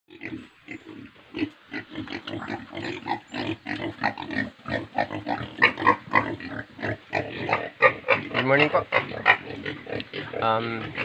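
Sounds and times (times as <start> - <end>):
pigs grunting: 0.1 - 11.0.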